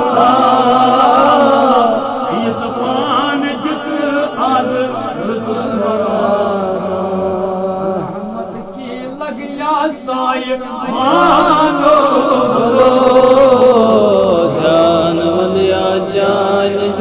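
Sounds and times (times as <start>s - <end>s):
person chanting devotional song: 0.0s - 17.0s.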